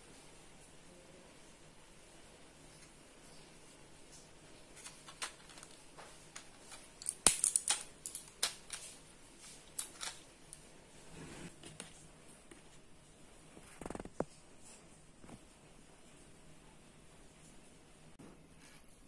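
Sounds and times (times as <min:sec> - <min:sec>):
blister pack crinkling: 0:04.7 - 0:10.6.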